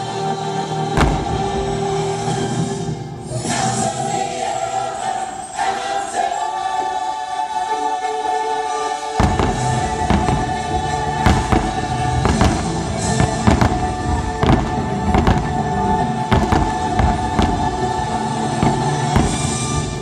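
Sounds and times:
choir singing held chord: 0.0 - 20.0
firework bangs: 1.0 - 3.0, 9.2 - 20.0
deep rumble: 1.0 - 3.4.

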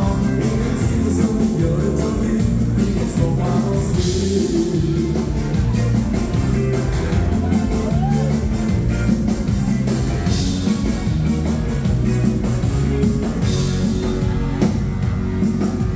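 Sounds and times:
live dance band music: 0.0 - 15.9.

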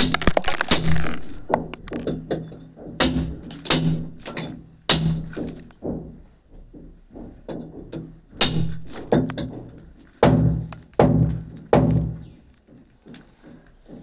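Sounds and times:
hammer striking steel chisel: 1.6 - 5.8, 7.5 - 12.2.

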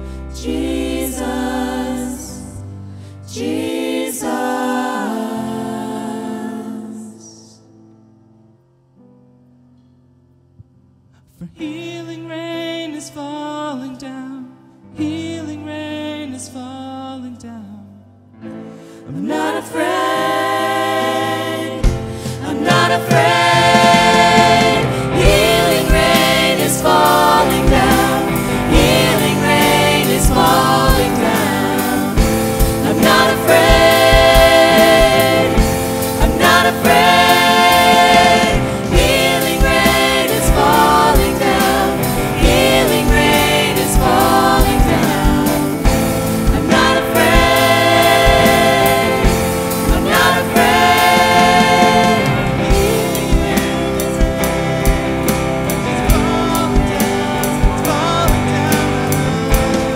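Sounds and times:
person singing: 19.1 - 54.5, 55.9 - 59.9
held keyboard notes: 19.4 - 59.9
band with drums: 21.8 - 59.9.

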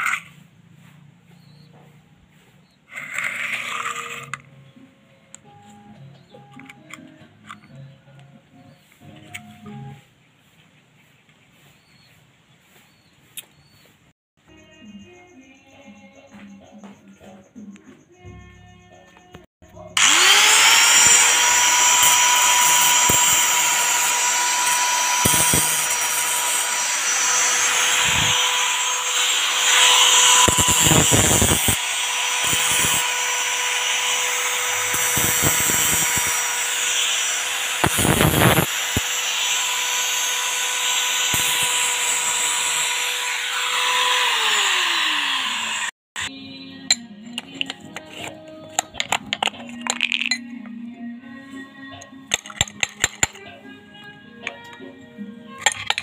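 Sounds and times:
rough rasping: 0.0 - 4.5, 20.0 - 45.9
angle grinder whining: 1.3 - 4.6, 19.6 - 50.4.

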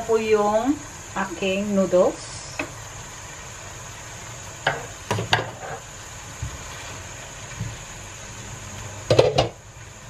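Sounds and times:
faint pan sizzle: 0.0 - 10.0
wooden spatula knocking on skillet: 4.6 - 5.8, 9.1 - 9.6.

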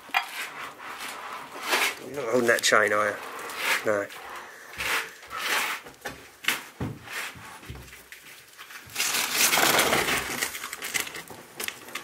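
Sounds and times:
loud scraping rustle: 0.1 - 6.0, 8.8 - 11.3
knocks and scuffs of climbing: 4.8 - 9.0.

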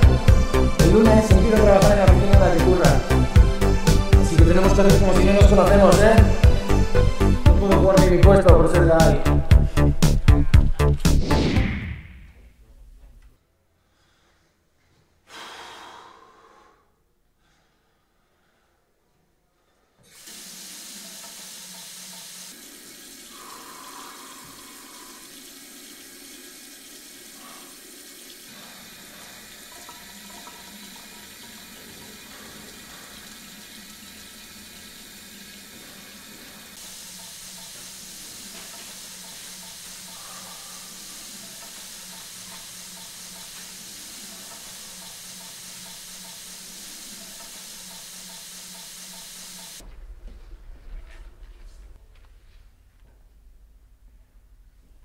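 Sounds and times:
tap water running into basin: 20.1 - 49.8.

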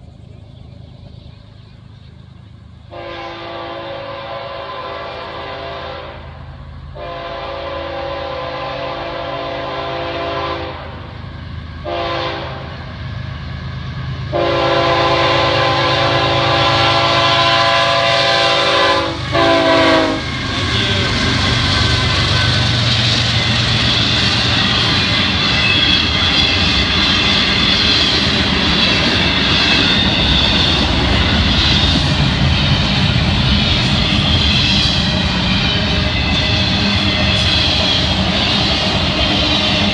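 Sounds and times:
freight train rumbling past: 0.0 - 39.9
train air horn blasts: 2.9 - 11.2, 11.8 - 12.8, 14.3 - 22.7
crossing warning bell ringing: 16.3 - 39.9.

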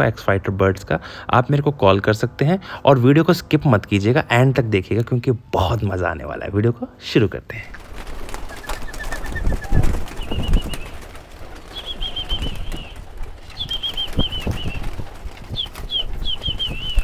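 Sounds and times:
pigeon wings flapping: 7.6 - 17.0.

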